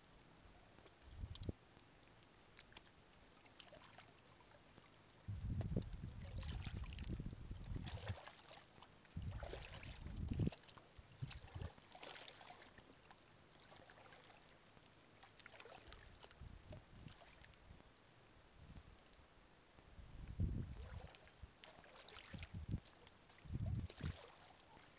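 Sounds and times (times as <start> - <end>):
wading steps splashing in water: 2.6 - 17.6, 20.7 - 24.9.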